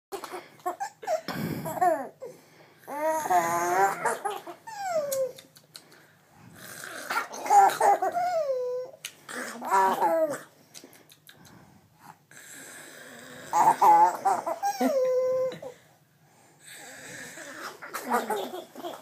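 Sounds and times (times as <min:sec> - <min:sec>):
baby laughing: 0:00.1 - 0:02.2, 0:02.9 - 0:05.5, 0:07.1 - 0:10.5, 0:13.5 - 0:15.8, 0:17.6 - 0:19.0.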